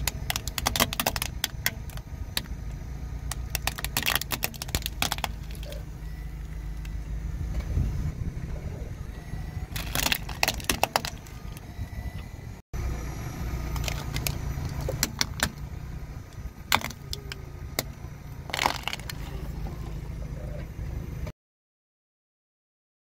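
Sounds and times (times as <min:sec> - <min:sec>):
plastic cracking under tyre: 0:00.0 - 0:05.8, 0:09.7 - 0:11.7, 0:13.7 - 0:15.7, 0:16.3 - 0:19.4
car rumbling slowly: 0:00.0 - 0:21.3.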